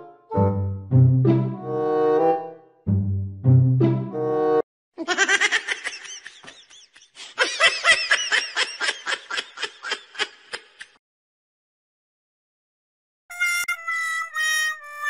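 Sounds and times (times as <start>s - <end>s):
woman laughing hard: 5.0s - 11.0s.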